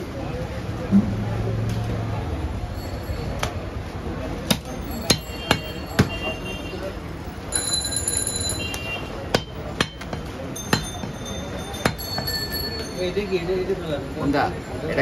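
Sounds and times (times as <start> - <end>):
cleaver chopping on wooden block: 4.5 - 6.2, 9.3 - 11.2
short bell-like ring: 10.6 - 13.5.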